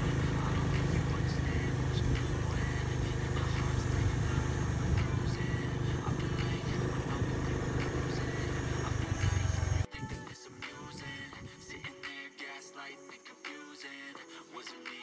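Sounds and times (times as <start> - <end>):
vehicle engine running: 0.0 - 9.9.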